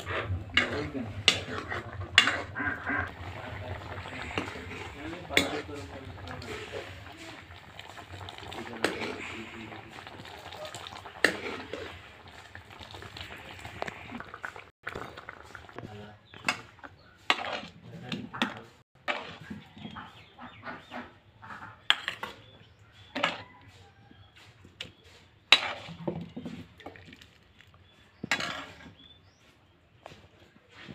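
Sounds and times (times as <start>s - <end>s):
metal ladle clanking on pot: 0.0s - 6.5s
metal ladle stirring in a pan: 0.0s - 20.3s, 21.8s - 23.4s, 25.4s - 29.2s.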